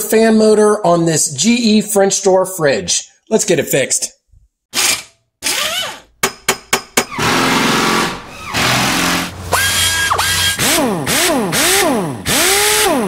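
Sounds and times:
sharp metallic hits: 6.2s - 11.8s
power-tool noise: 7.0s - 13.0s
drill whine: 7.1s - 13.0s
rising sweep: 7.2s - 11.2s.

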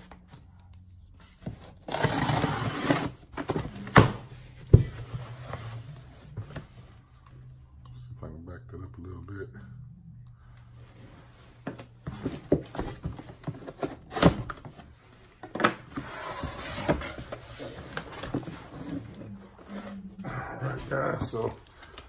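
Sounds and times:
cardboard scraping and rustling: 11.6s - 20.0s.

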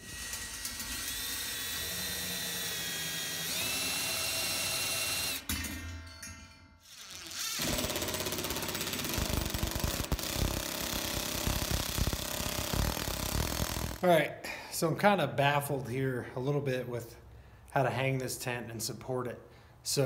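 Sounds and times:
cordless drill whining: 0.0s - 5.5s, 6.9s - 14.0s
impact driver hammering: 7.6s - 14.0s.

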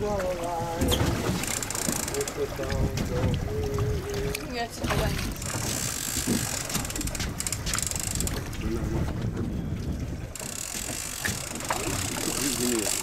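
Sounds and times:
water lapping at boat hull: 0.0s - 13.0s
wind on microphone: 2.4s - 10.6s.

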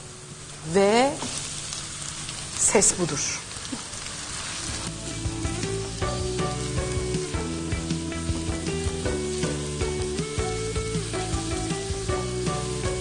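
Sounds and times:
meat and onions sizzling in a pan: 0.0s - 13.0s
soft background music: 4.9s - 13.0s.

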